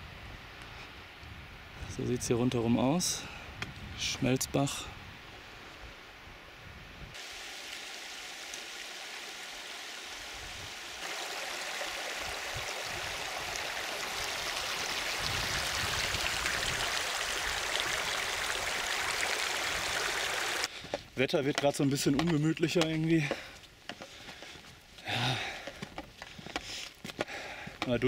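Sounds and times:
stream rushing over stones: 0:07.2 - 0:20.7.

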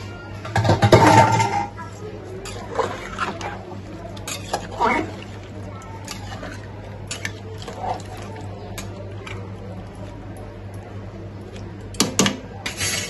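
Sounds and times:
spoon stirring curry in pot: 0:02.3 - 0:10.6.

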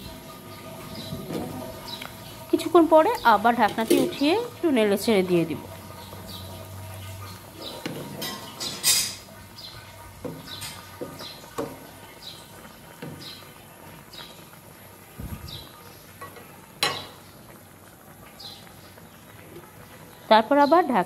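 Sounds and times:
pan lid and spoon clattering: 0:07.9 - 0:09.2.

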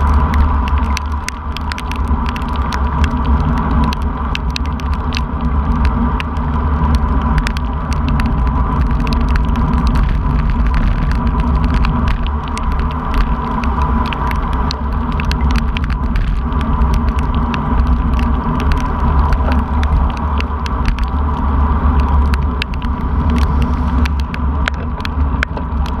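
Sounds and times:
raindrops ticking on camera: 0:00.0 - 0:26.0
wind and road rumble: 0:00.0 - 0:26.0.

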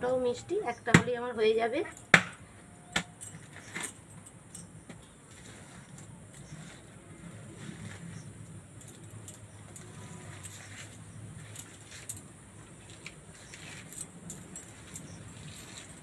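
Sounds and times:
fruit scraping on woven basket: 0:05.3 - 0:08.3.

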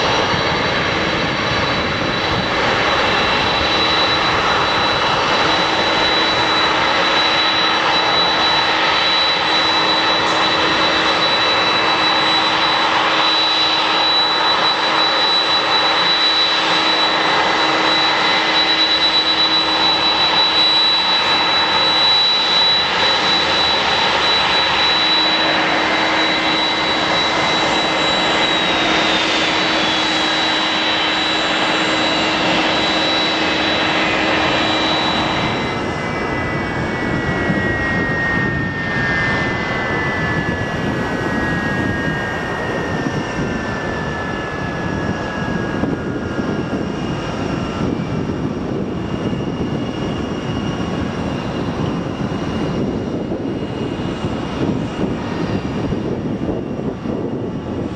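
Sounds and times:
jet engines whining: 0:00.0 - 0:57.9.

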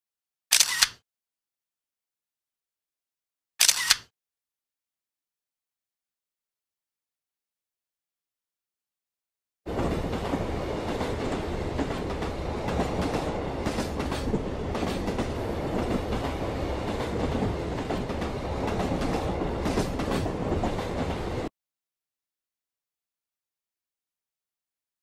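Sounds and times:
railcar rumble and hum: 0:09.7 - 0:21.5.

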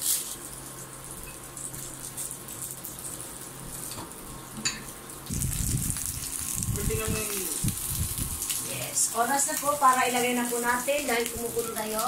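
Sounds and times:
broth boiling in a pot: 0:00.0 - 0:12.0
low rumble: 0:05.3 - 0:08.4.

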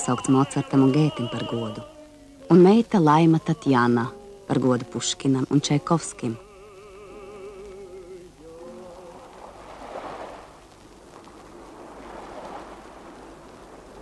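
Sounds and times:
faint held musical tone: 0:00.0 - 0:11.9
soft rushing noise: 0:07.6 - 0:14.0.

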